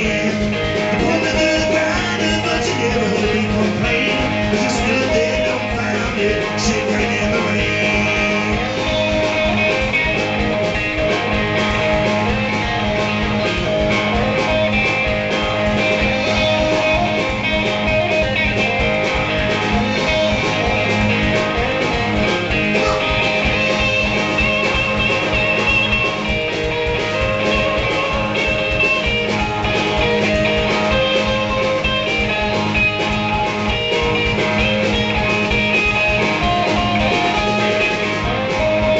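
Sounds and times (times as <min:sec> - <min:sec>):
person singing: 0:00.0 - 0:09.3
blues band playing: 0:00.0 - 0:38.9
drum kit: 0:00.0 - 0:38.9
electric guitar: 0:00.0 - 0:38.9.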